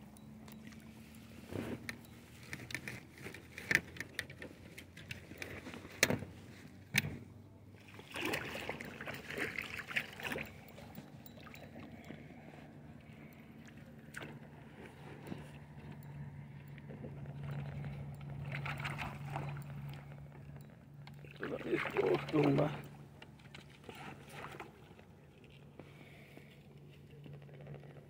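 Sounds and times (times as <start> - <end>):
gear clicks and knocks: 1.8 - 7.2.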